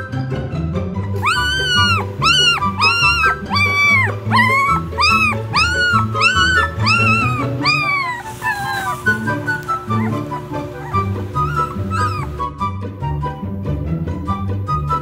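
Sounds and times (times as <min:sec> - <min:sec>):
puppy whining: 0:01.2 - 0:12.7
background music: 0:09.5 - 0:15.0.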